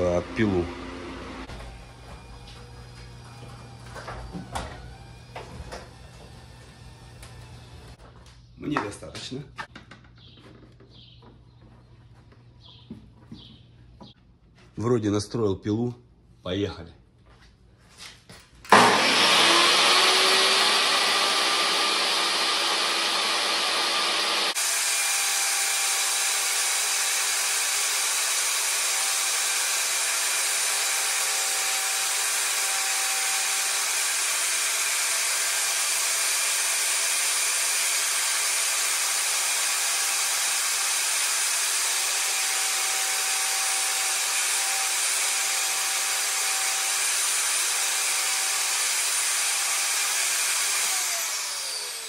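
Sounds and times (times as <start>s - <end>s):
table saw motor whine: 0.0s - 8.0s, 18.7s - 52.0s.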